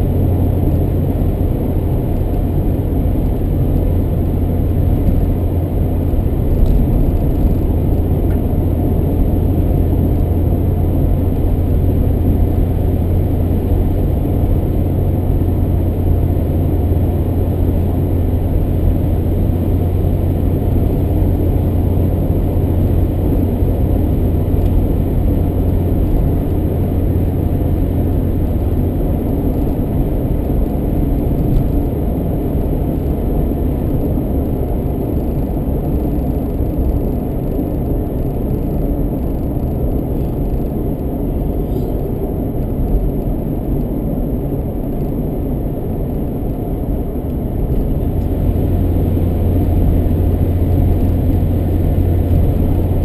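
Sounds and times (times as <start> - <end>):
car interior road rumble: 0.0 - 53.0
engine drone: 0.0 - 53.0.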